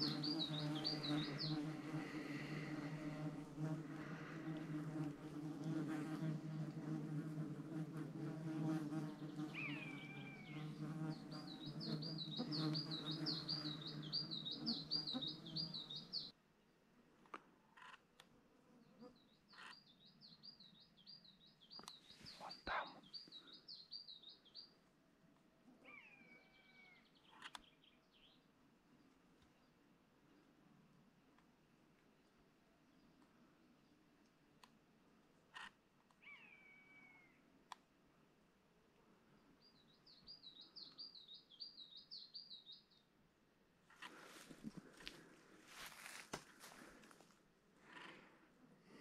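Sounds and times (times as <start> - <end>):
songbird warbling: 0.0 - 1.7, 9.2 - 16.3
insect buzzing: 0.0 - 16.3.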